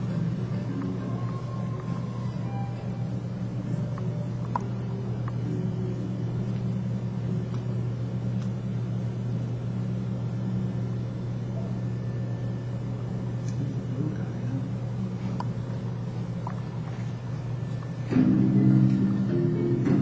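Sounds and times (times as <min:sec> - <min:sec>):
steady low indoor hum: 0:00.0 - 0:20.0.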